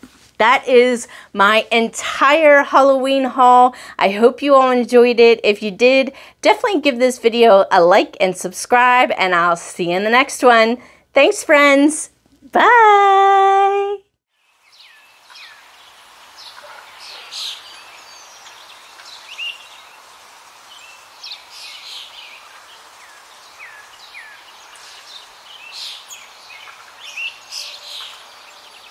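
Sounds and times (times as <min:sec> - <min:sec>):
small birds chirping: 0:14.4 - 0:28.9
steady background hiss: 0:14.4 - 0:28.9
downward-sweeping bird calls: 0:14.5 - 0:28.9.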